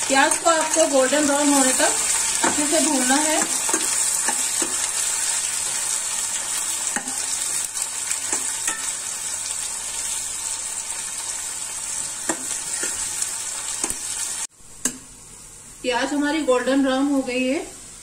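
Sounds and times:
onions sizzling in oil: 0.0 - 18.0
metal spatula clinking on pan: 8.3 - 9.0.

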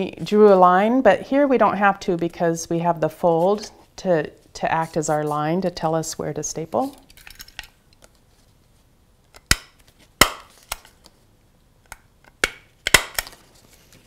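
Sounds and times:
paper handling: 13.2 - 14.0.

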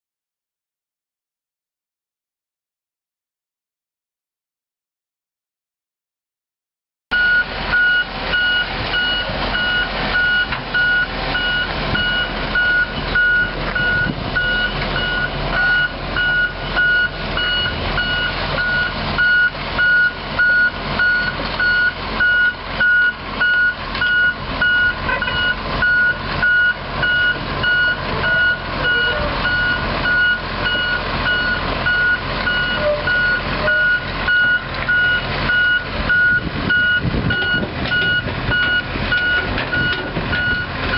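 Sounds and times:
warning alarm beeping: 7.1 - 40.7
diesel engine running: 7.1 - 40.9.

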